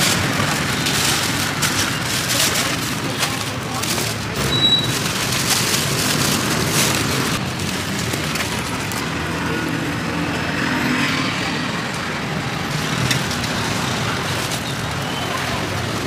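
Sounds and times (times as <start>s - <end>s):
plastic bags crinkling: 0.0s - 9.5s, 12.7s - 16.0s
street traffic noise: 0.0s - 16.0s.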